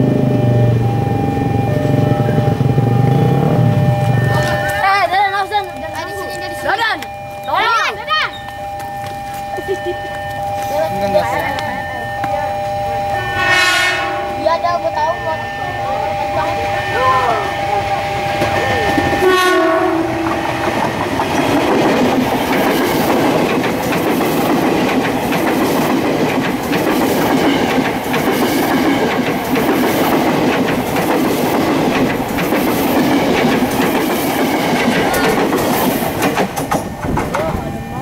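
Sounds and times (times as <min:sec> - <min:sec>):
train rolling rumble: 0:00.0 - 0:38.0
train horn chord: 0:08.5 - 0:20.7
wheels clicking over rail joints: 0:20.2 - 0:37.9.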